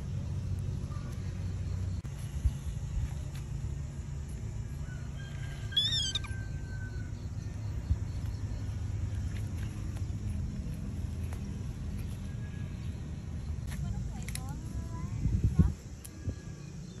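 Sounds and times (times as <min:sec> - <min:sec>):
baby monkey squealing: 0:05.7 - 0:06.5.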